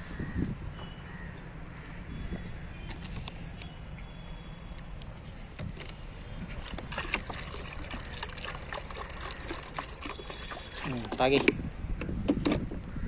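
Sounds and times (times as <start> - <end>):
water pouring into a bowl: 6.9 - 11.3.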